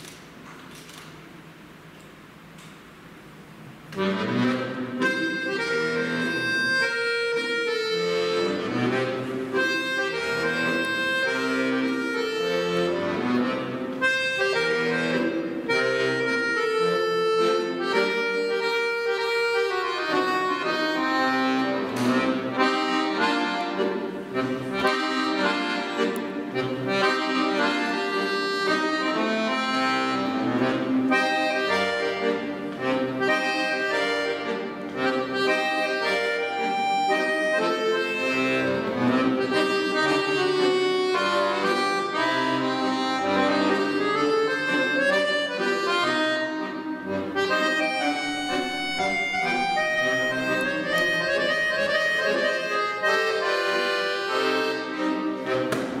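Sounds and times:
piano accordion playing: 3.7 - 56.0.

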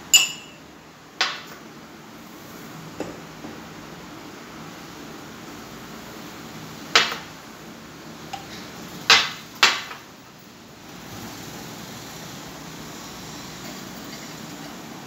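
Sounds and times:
china dishes clinking: 0.1 - 0.6.

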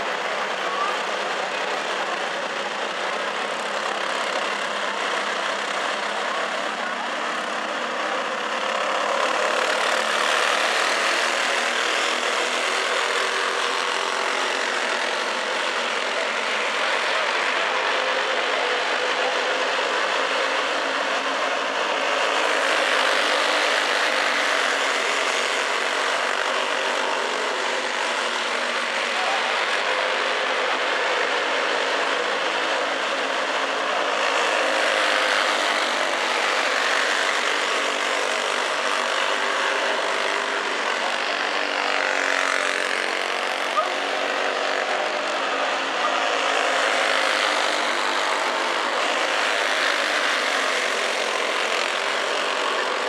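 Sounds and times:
go-kart engines buzzing: 0.0 - 53.0.

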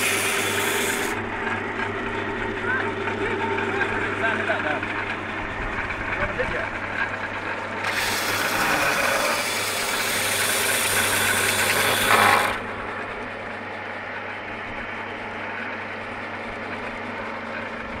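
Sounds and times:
belt sander grinding wood: 0.0 - 1.9, 2.5 - 13.1
sander motor humming: 0.0 - 6.5, 7.6 - 13.5.

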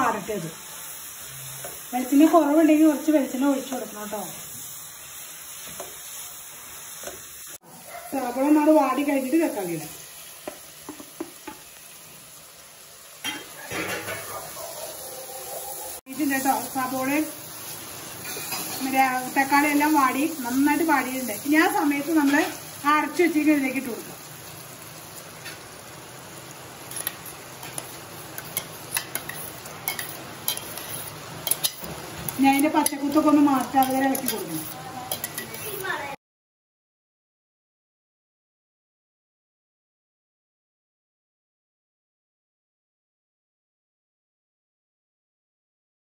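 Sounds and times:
food sizzling in pan: 0.0 - 36.2
spatula scraping and stirring pan: 0.6 - 2.6, 3.3 - 8.6, 13.2 - 22.8, 25.1 - 25.8, 26.4 - 36.0
utensils tapping a pan: 7.0 - 7.3, 10.4 - 11.7, 13.2 - 14.4, 18.2 - 19.0, 26.9 - 35.8
metal clinking against pan: 35.1 - 35.6.

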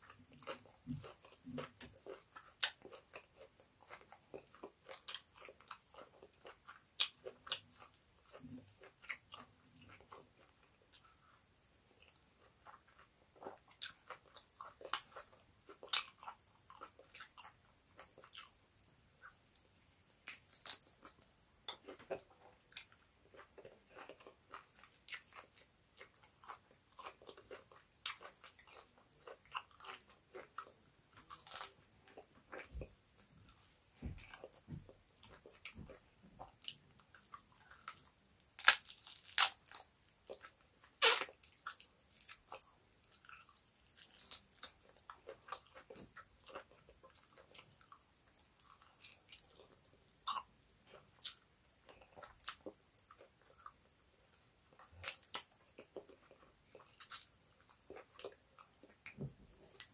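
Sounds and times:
person chewing and biting food: 20.2 - 53.9.

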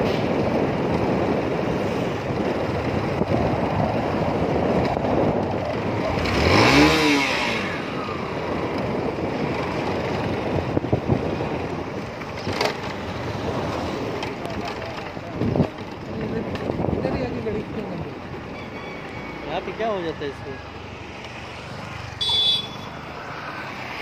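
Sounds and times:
engine and road noise: 0.0 - 24.0
motorcycle engine revving: 2.2 - 19.9.

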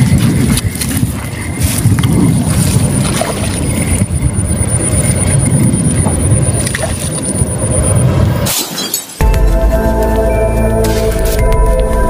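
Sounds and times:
high steady whine: 3.6 - 8.4.

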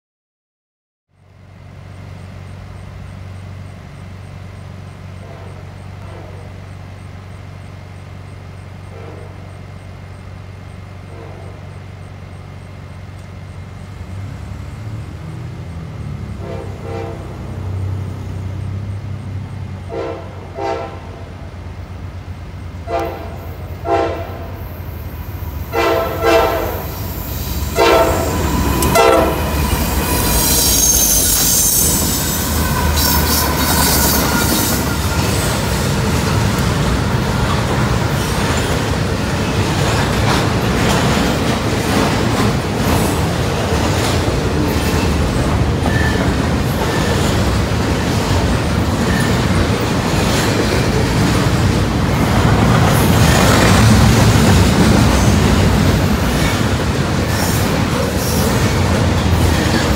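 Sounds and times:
low train rumble: 1.1 - 59.9
locomotive air horn blasts: 16.3 - 17.7, 19.8 - 21.3, 22.8 - 24.6, 25.6 - 35.6.

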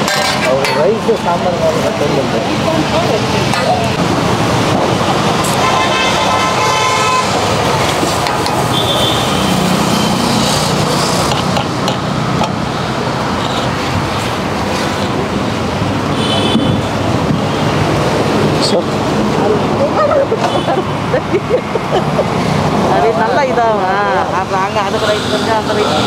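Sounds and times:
street traffic noise: 0.0 - 26.0
car horns honking: 5.4 - 10.3, 16.1 - 17.0.

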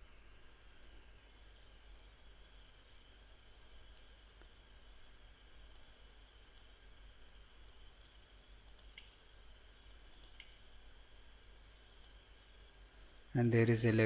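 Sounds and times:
low hum and hiss: 0.0 - 14.0
computer mouse clicks: 5.6 - 7.9, 8.6 - 9.2, 10.1 - 10.6, 11.9 - 12.2.

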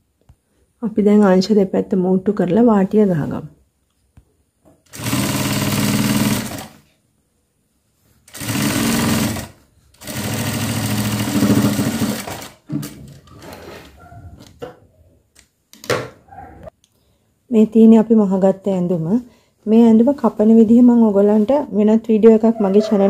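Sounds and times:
sewing machine stitching: 4.9 - 6.8, 8.3 - 13.9.

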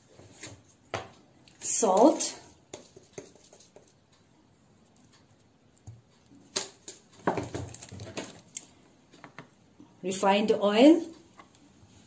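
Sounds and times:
rustling and knocking: 2.7 - 4.0, 5.9 - 8.5.

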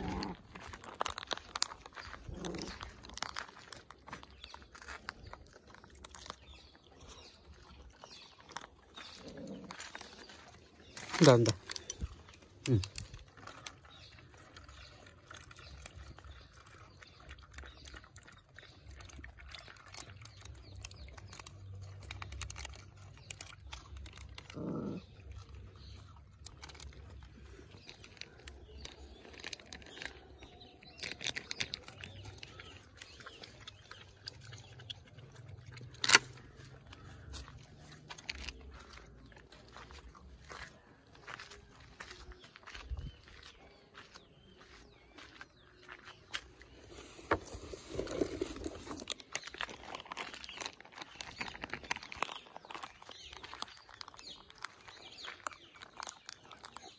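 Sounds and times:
puppies chewing and lapping: 0.0 - 56.9.

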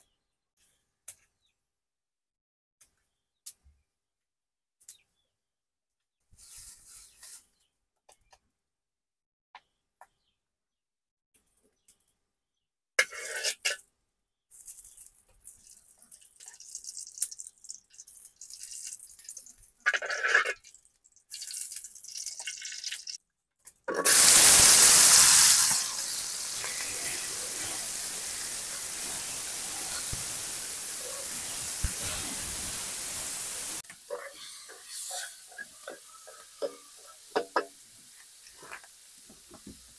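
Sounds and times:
short noise bursts: 24.0 - 33.8
running water rushing: 24.1 - 33.8.

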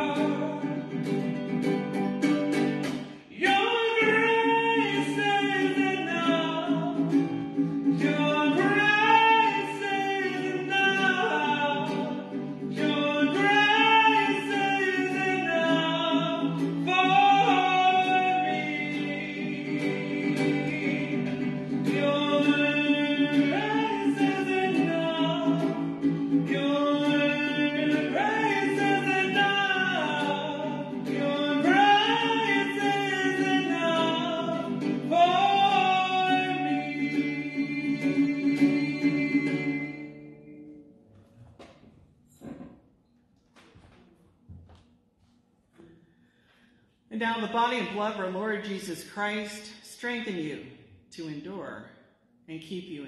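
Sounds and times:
guitar chords: 0.0 - 41.8
hymn singing: 0.0 - 41.8.

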